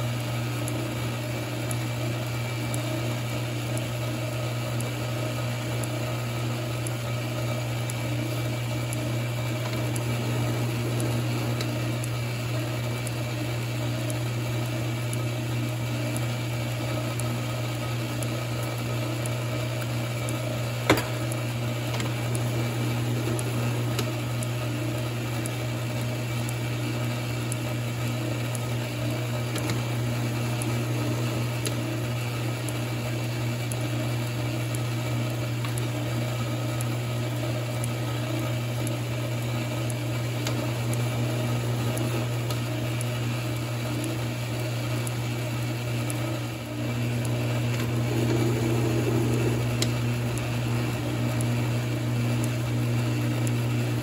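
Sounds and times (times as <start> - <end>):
metal lathe motor hum: 0.0 - 54.0
sharp click: 20.8 - 22.4, 47.2 - 52.6.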